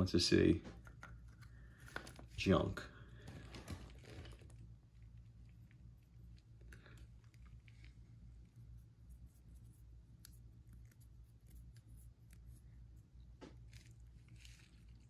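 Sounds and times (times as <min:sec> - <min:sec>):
low room hum: 0:00.0 - 0:15.0
paintbrush scratchy strokes: 0:07.3 - 0:13.1.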